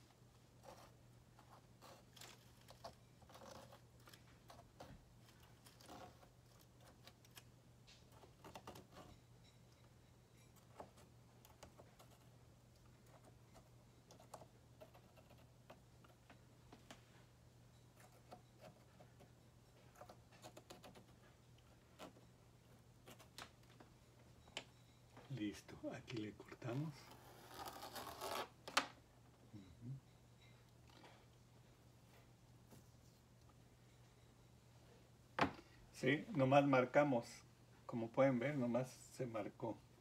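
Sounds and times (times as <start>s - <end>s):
tool scratching soft clay: 0.0s - 7.5s
low steady hum: 0.0s - 40.0s.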